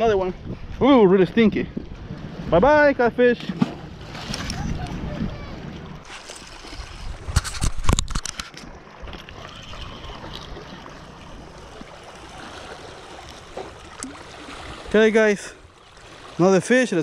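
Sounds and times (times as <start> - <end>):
wind: 0.0 - 17.0
water lapping on rocks: 3.5 - 17.0
fishing tackle clicks and knocks: 7.3 - 8.7.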